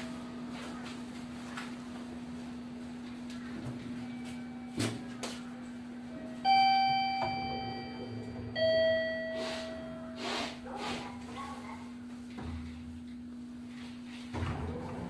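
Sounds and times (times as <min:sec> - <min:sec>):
elevator two-tone chime: 0:06.4 - 0:10.1.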